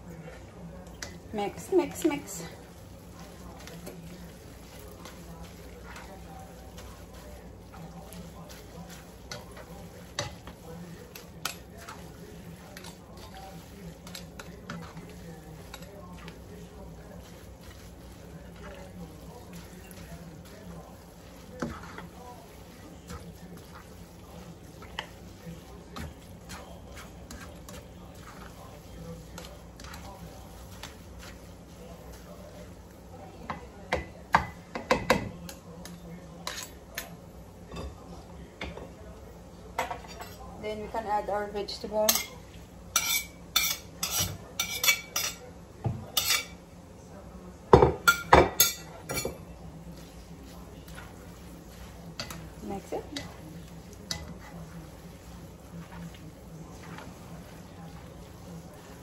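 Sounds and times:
utensils clacking on frying pan: 4.6 - 16.5, 42.0 - 45.4, 46.1 - 46.6, 47.8 - 49.4, 52.0 - 55.2.

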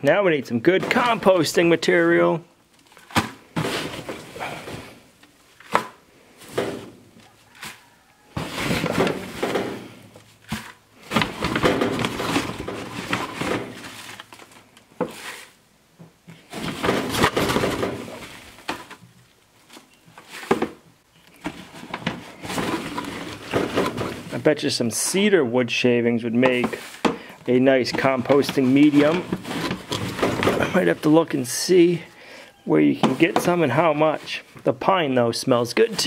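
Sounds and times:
paper bag rustling: 6.5 - 15.6, 21.4 - 24.7, 26.6 - 32.1
scoop digging in wood shavings: 15.1 - 15.6.

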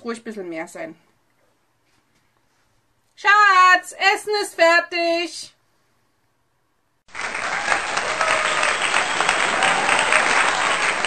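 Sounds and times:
crowd applause: 7.1 - 11.0.

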